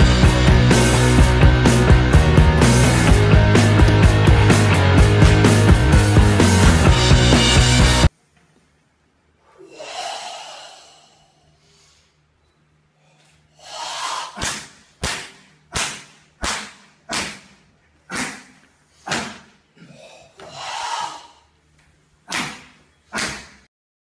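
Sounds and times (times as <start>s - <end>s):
sharp hissing exhalations: 9.5s - 12.2s, 13.5s - 14.4s, 20.0s - 21.5s
person drawing breath: 9.5s - 12.3s, 13.0s - 14.6s, 19.9s - 21.5s.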